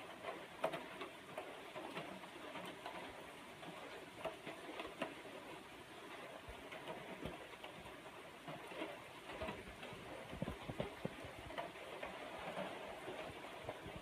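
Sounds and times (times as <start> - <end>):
rain falling: 0.0 - 14.0.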